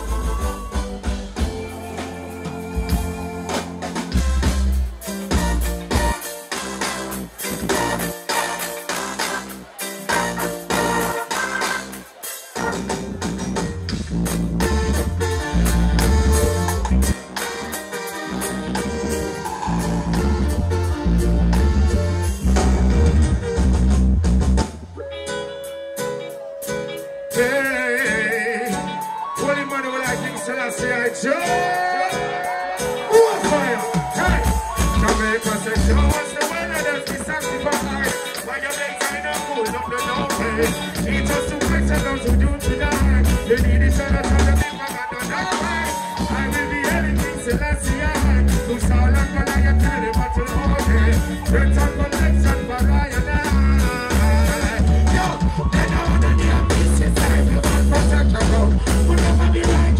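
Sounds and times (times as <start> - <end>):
heavy bass notes: 0.0 - 25.4, 33.4 - 59.9
drums: 0.0 - 30.2, 31.4 - 59.9
live band playing: 0.0 - 59.9
person singing with vibrato: 27.2 - 59.9.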